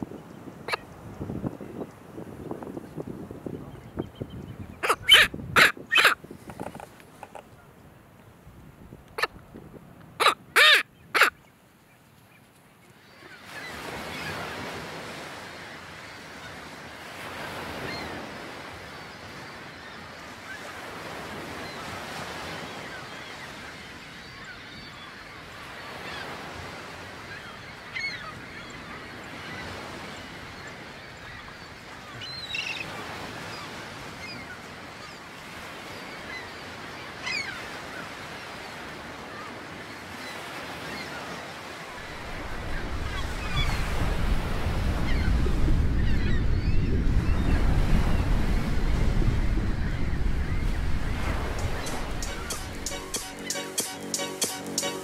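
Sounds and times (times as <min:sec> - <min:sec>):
wind buffeting microphone: 0:00.0 - 0:07.6, 0:08.4 - 0:11.2, 0:41.9 - 0:53.1
high-pitched bird calls: 0:04.8 - 0:06.2
surf washing onto shore: 0:13.4 - 0:19.6, 0:37.0 - 0:55.0.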